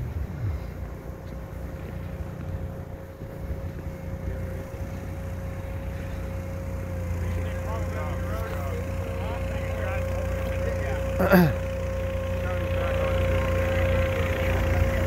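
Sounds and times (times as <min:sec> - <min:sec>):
wind on microphone: 0:00.0 - 0:01.0
boat engine rumble with whine: 0:00.0 - 0:15.0.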